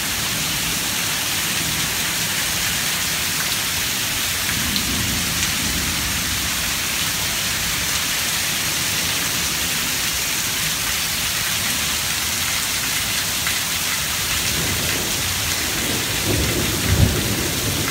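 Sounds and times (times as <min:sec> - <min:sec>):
steady rain falling: 0:00.0 - 0:17.9
low rumble of thunder: 0:04.4 - 0:07.7, 0:14.4 - 0:17.9.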